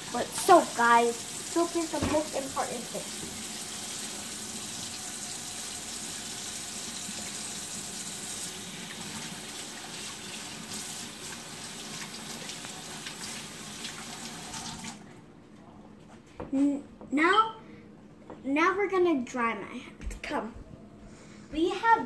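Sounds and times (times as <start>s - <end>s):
faucet running into steel sink: 0.0s - 15.0s.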